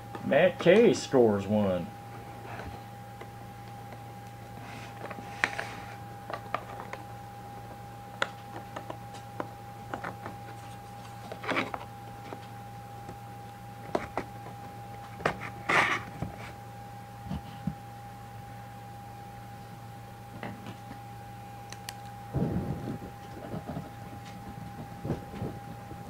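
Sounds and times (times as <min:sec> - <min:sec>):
low hum: 0:01.1 - 0:26.0
cardboard boxes clicking and tapping: 0:08.2 - 0:10.5.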